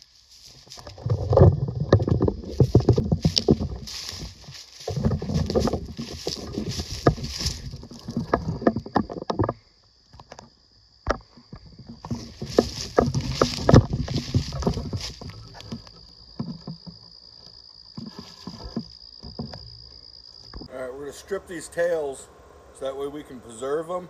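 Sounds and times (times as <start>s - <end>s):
footsteps crunching through dry leaves: 0.0s - 1.1s, 2.3s - 8.6s, 12.1s - 15.9s.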